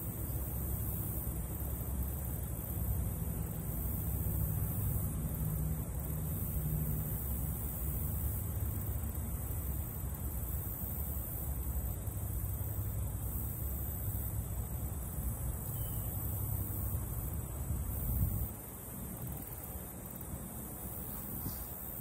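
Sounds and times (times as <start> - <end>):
faint high hiss: 0.0 - 22.0.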